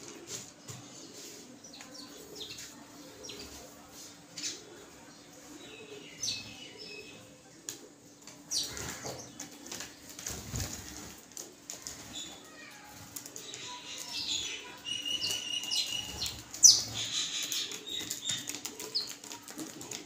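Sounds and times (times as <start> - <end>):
small birds chirping: 0.0 - 20.0
bird wings flapping: 8.7 - 12.3.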